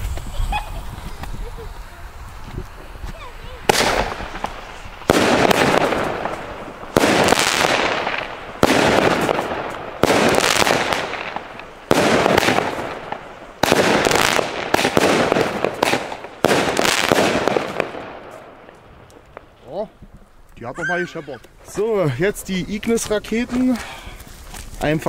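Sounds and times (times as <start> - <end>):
firework bangs: 0.0 - 19.8
firework crackle: 0.0 - 20.7, 22.7 - 25.0.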